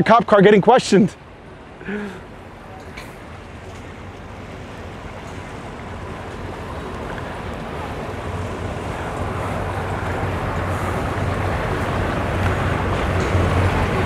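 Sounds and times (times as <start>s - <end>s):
water washing along hull: 0.0s - 14.0s
outboard motors running: 0.9s - 14.0s.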